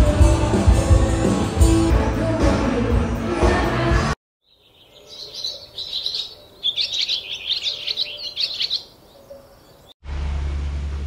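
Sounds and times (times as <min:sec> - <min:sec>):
small birds twittering: 0:04.4 - 0:10.0.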